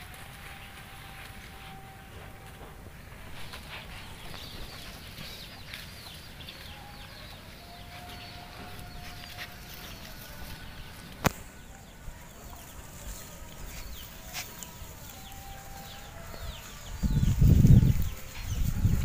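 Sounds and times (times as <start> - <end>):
chickens peeping: 0.0 - 19.0.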